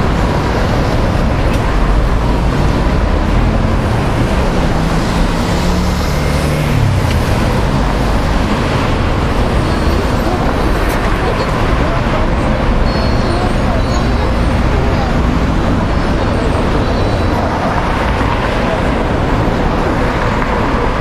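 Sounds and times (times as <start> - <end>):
city road traffic: 0.0 - 21.0
vehicle engine passing: 0.0 - 21.0.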